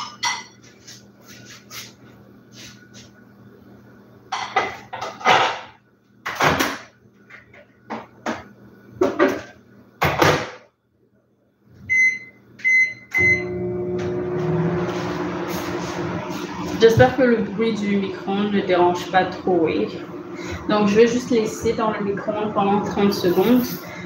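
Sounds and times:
microwave oven humming: 0.0 - 24.0
microwave keypad beeps: 11.9 - 13.6.

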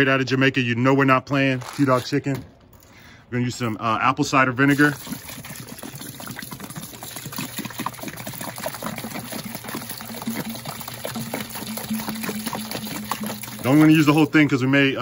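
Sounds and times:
liquid pouring and splashing: 4.6 - 14.6.

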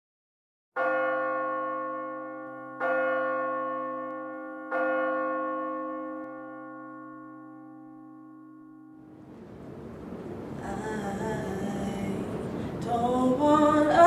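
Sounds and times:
large bell tolling: 0.8 - 10.6.

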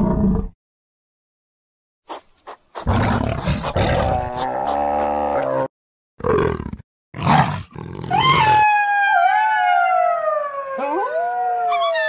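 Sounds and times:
wolf howls: 8.1 - 12.0.

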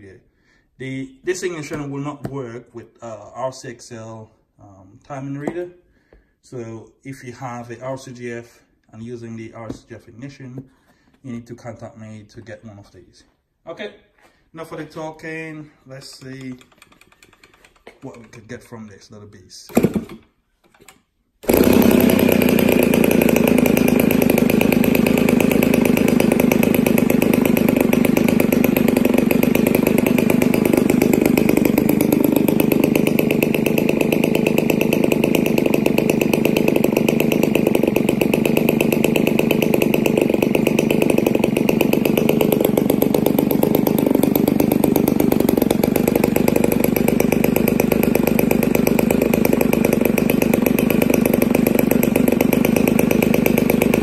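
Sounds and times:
model engine idling: 21.4 - 54.0.

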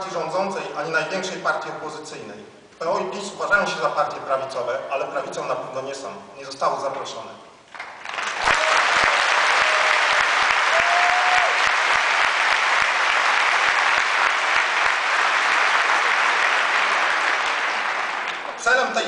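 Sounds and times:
audience applauding: 7.7 - 18.9.

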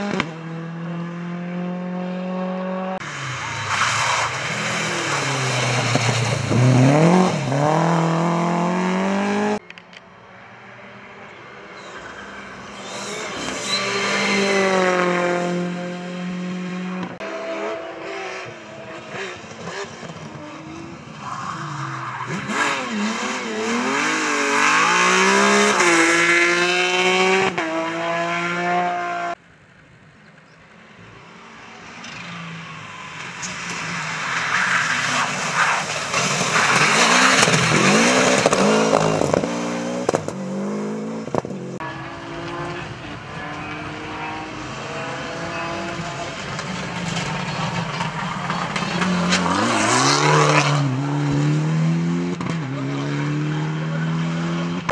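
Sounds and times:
rally car engines revving past: 0.0 - 9.6, 10.4 - 29.4, 31.5 - 54.9.

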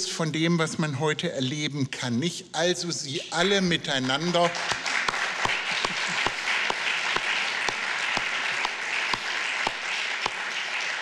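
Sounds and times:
audience applause: 4.1 - 11.0
person clapping close by: 4.4 - 11.0.

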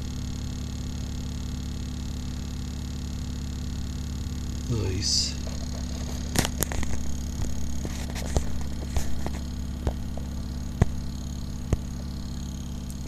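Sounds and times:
low electrical hum: 0.0 - 13.0.

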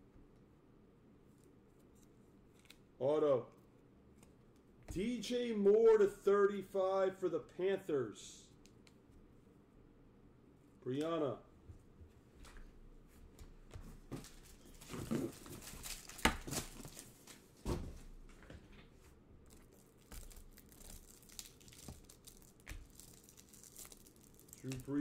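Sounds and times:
cards snapping and rustling: 14.3 - 17.4, 19.5 - 25.0
card wrappers tearing and crinkling: 14.5 - 17.4, 19.5 - 25.0.

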